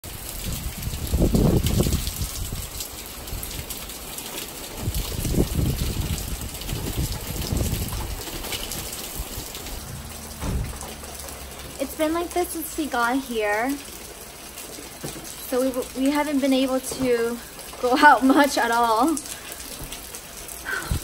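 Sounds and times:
heavy rain hissing: 0.0s - 21.0s
rain drops ticking: 0.0s - 21.0s
low rumbling surges: 9.8s - 12.1s.

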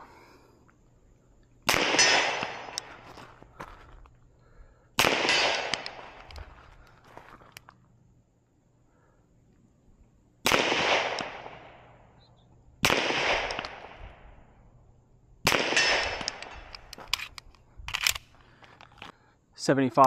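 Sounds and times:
pistol shots echoing: 1.7s - 3.0s, 5.0s - 6.3s, 10.4s - 12.0s, 12.8s - 14.1s, 15.5s - 16.7s.

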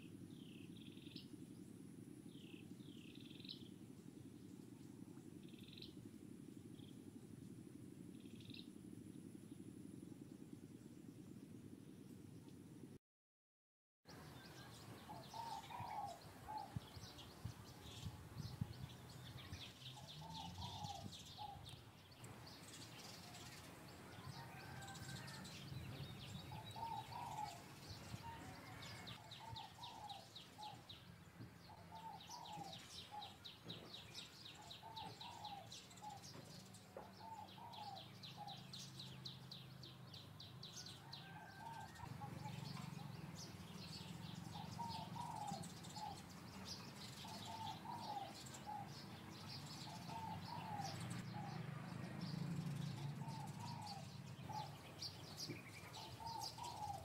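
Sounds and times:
low steady hum: 0.0s - 13.0s
bird cooing: 14.2s - 18.0s, 19.5s - 21.8s, 22.9s - 30.9s, 31.7s - 38.8s, 41.0s - 57.0s.

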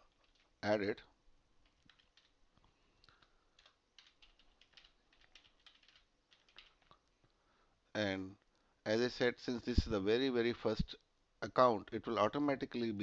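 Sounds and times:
keyboard keystrokes: 1.6s - 2.4s, 3.1s - 6.9s.

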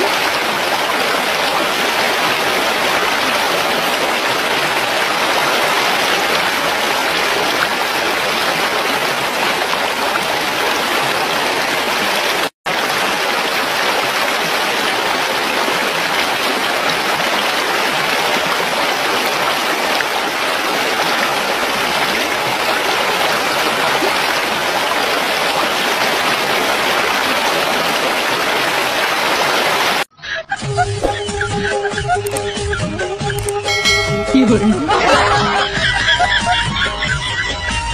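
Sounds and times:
water running over rocks: 0.0s - 30.1s.

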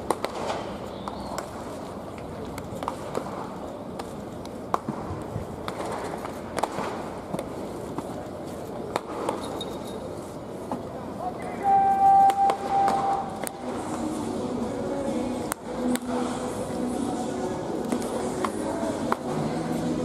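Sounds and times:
bats hitting balls: 0.0s - 1.7s, 2.6s - 8.1s, 8.9s - 9.7s
background murmur: 0.0s - 20.0s.

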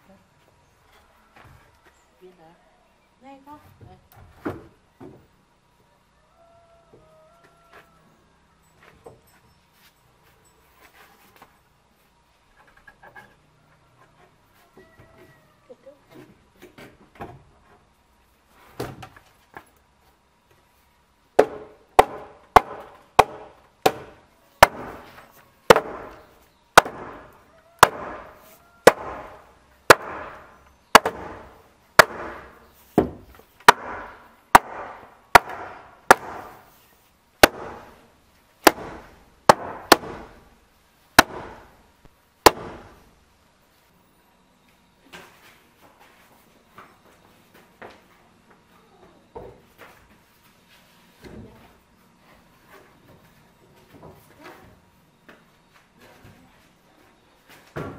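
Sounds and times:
wooden mallet knocking timber: 21.4s - 25.1s, 25.7s - 26.2s, 26.8s - 28.3s, 28.9s - 36.6s.

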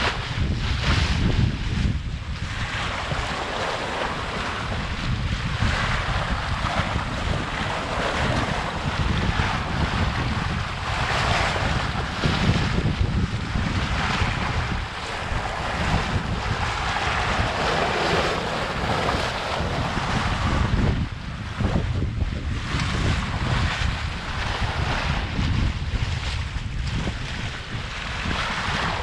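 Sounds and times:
water rushing along a hull: 0.0s - 29.0s
wind buffeting microphone: 0.0s - 29.0s.

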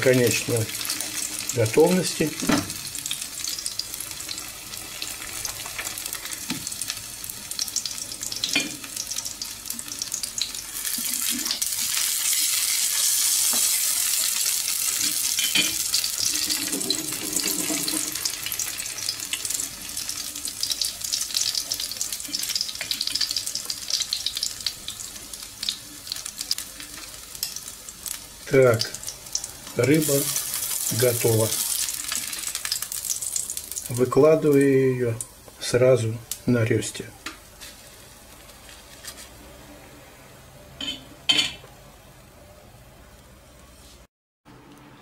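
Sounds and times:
fish sizzling in a pan: 0.0s - 34.9s.

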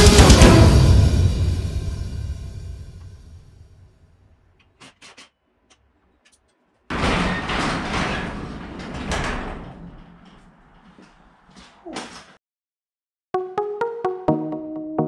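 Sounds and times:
garage door rolling noise: 4.6s - 12.4s.

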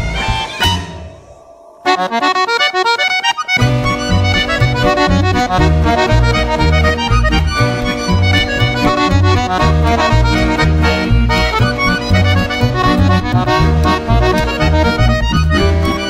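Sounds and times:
accordion: 0.0s - 1.0s, 1.8s - 16.0s
double bass line: 1.9s - 16.0s
violin: 3.5s - 16.0s.

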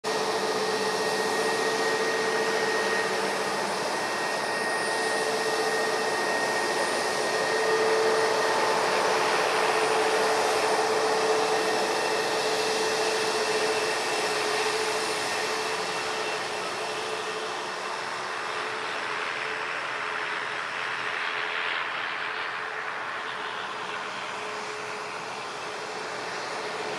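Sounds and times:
jet engines whining: 0.0s - 26.9s.

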